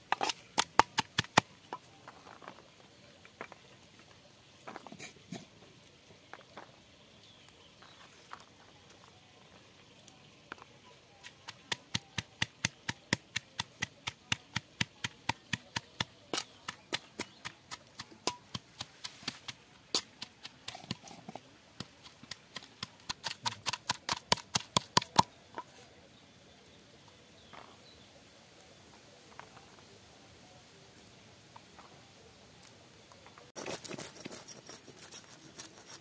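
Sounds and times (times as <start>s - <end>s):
wooden pestle pounding in stone mortar: 21.8s - 25.3s.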